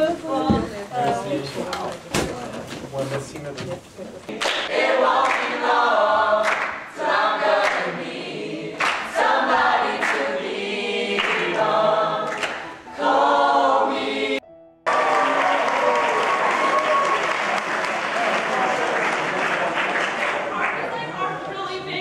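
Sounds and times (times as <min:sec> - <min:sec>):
applause: 0:04.4 - 0:05.5, 0:06.4 - 0:06.8, 0:07.6 - 0:07.9, 0:08.8 - 0:09.1, 0:14.9 - 0:21.1
choir singing: 0:04.7 - 0:14.5, 0:20.8 - 0:22.0.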